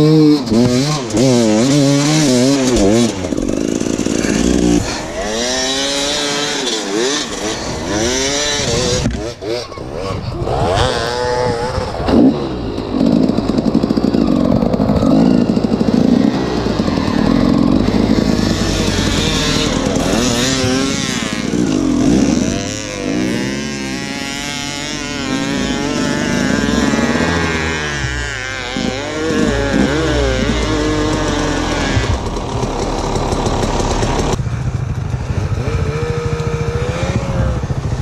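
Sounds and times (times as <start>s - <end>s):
motorcycle engine revving: 0.0s - 38.0s.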